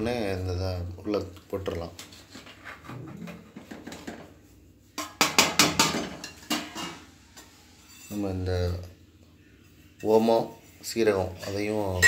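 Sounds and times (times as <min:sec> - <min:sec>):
spoon scraping a steel pot: 0:06.2 - 0:08.2.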